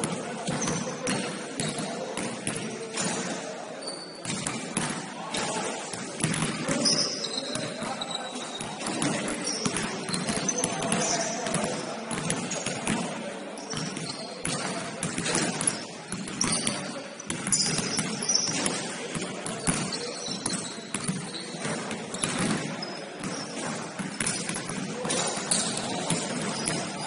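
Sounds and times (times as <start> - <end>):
shoe squeaks: 0.5 - 1.8, 3.8 - 4.3, 6.7 - 11.6, 13.6 - 14.7, 15.3 - 18.8, 19.4 - 23.6, 25.0 - 27.0
basketball bouncing on floor: 13.7 - 23.4.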